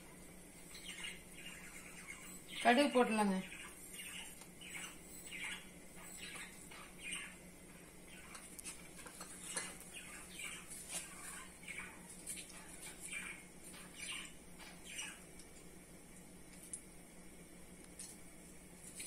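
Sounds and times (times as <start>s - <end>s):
bird chirping: 0.6s - 15.3s.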